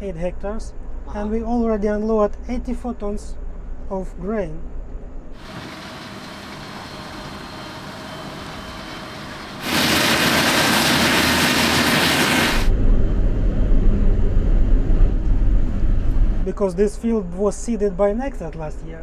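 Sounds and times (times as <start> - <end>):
combine harvester machine noise: 5.4 - 16.5
strong hiss: 9.6 - 12.7
deep low rumble: 11.8 - 16.5.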